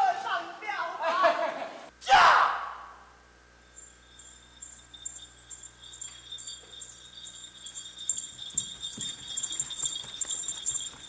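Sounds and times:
small bells jingling: 0:03.6 - 0:11.0.

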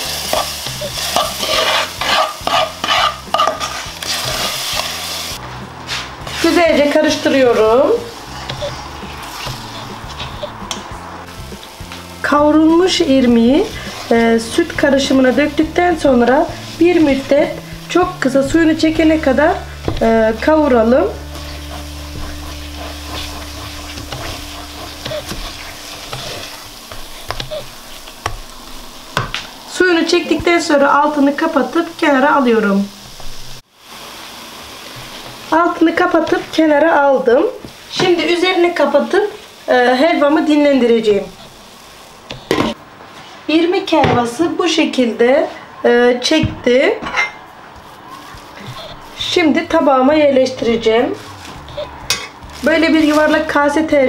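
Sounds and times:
wooden spoon scraping a pan: 0:00.0 - 0:29.4, 0:42.2 - 0:43.4, 0:47.0 - 0:54.0
soft sizzling: 0:00.0 - 0:43.4, 0:46.6 - 0:54.0.

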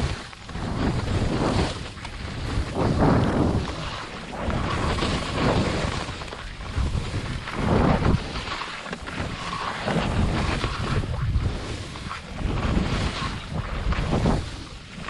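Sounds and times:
skis scraping through snow: 0:00.0 - 0:15.0
wind on microphone: 0:00.0 - 0:15.0.

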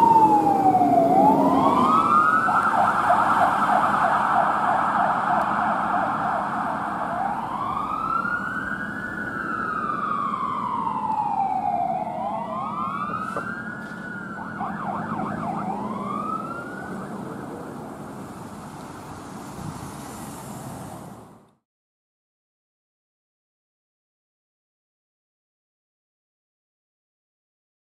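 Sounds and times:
siren yelp and wail: 0:00.0 - 0:17.8
traffic noise: 0:00.0 - 0:21.6.

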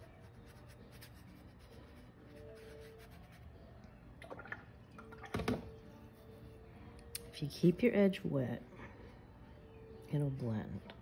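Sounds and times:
paintbrush rubbing on paper: 0:00.0 - 0:03.5.

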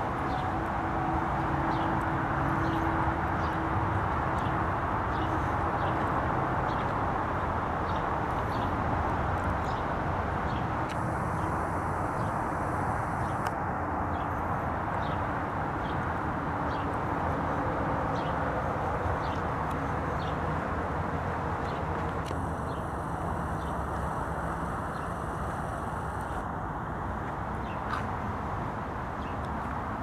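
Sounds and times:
distant traffic hum: 0:00.0 - 0:30.0.

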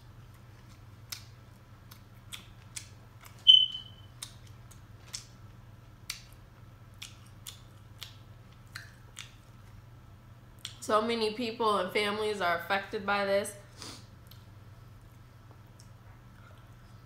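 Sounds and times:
chewing and eating sounds: 0:00.2 - 0:03.4, 0:04.1 - 0:09.9, 0:14.2 - 0:17.0.

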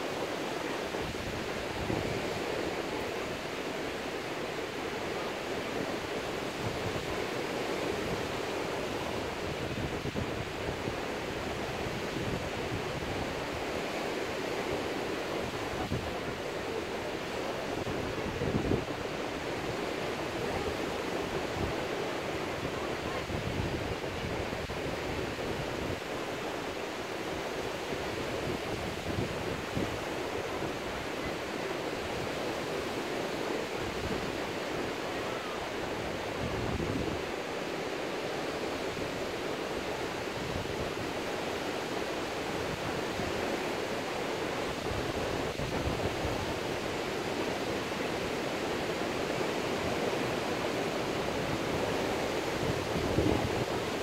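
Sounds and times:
wind rumble on microphone: 0:05.2 - 0:13.7, 0:17.1 - 0:32.8, 0:33.5 - 0:37.4, 0:44.5 - 0:48.0, 0:51.1 - 0:54.0.

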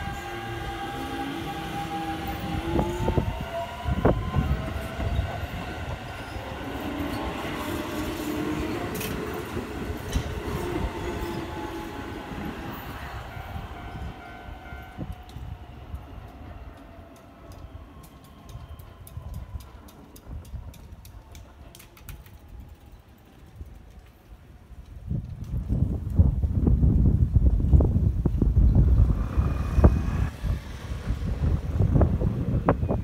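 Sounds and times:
traction motors whining: 0:00.0 - 0:13.0, 0:28.6 - 0:33.0
wheels rumbling on rail: 0:00.0 - 0:33.0.

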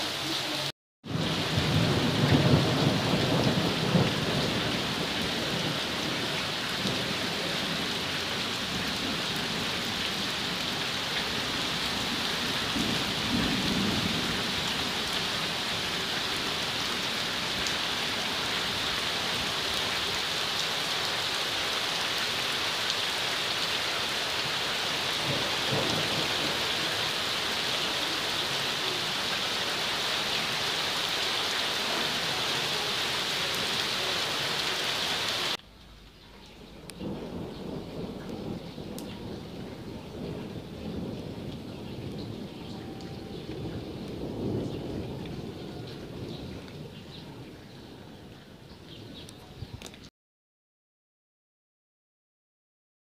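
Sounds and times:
heavy rain and hail: 0:00.0 - 0:35.6, 0:36.4 - 0:50.1
low rumble of thunder: 0:01.0 - 0:18.6, 0:24.9 - 0:28.3, 0:36.6 - 0:49.9.

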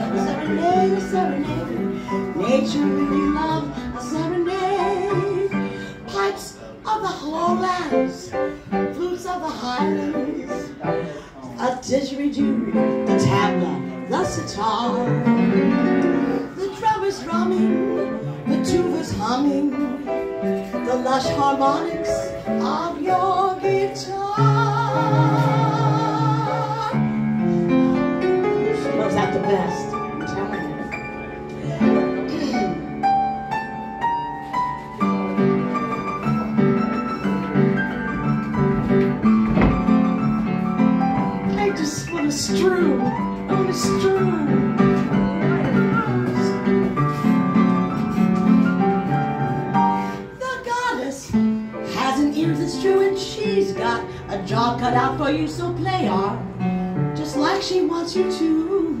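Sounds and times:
woman singing into a microphone: 0:00.0 - 0:28.0, 0:41.4 - 0:46.8, 0:50.0 - 0:56.4, 0:57.2 - 0:59.0
piano accompaniment: 0:00.0 - 0:59.0.

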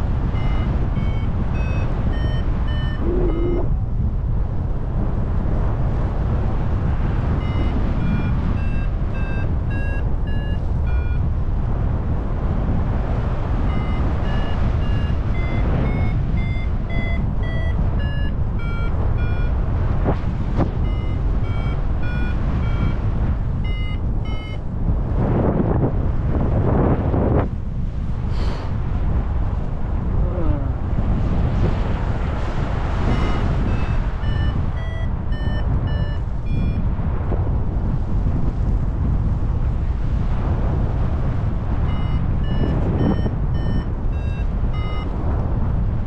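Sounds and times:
variometer beeping: 0:00.0 - 0:03.8, 0:07.3 - 0:11.4, 0:13.5 - 0:24.7, 0:32.9 - 0:37.0, 0:41.7 - 0:45.5
wind rumble on microphone: 0:00.0 - 0:46.0.

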